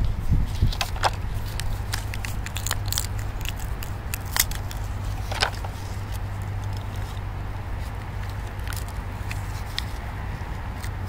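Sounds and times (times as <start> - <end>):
steady low rumble: 0.0 - 11.0
plastic handling clicks and rustles: 0.6 - 10.0.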